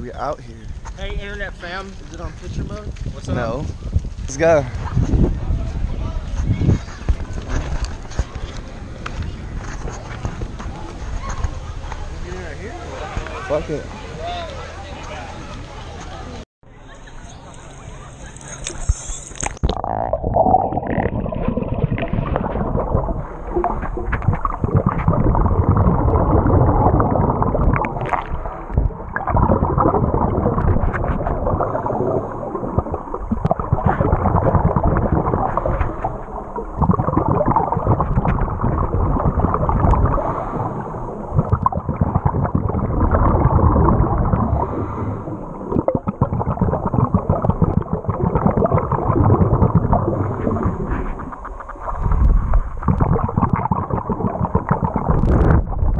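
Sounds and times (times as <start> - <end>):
muffled underwater rushing water: 18.0 - 55.9.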